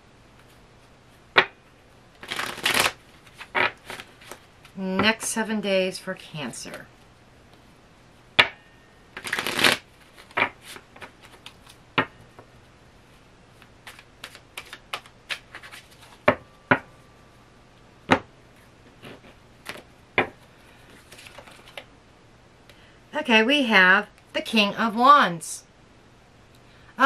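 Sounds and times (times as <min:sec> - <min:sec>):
cards being shuffled: 0:02.2 - 0:04.8, 0:09.2 - 0:11.8, 0:13.6 - 0:16.4, 0:18.9 - 0:19.9, 0:20.8 - 0:21.9.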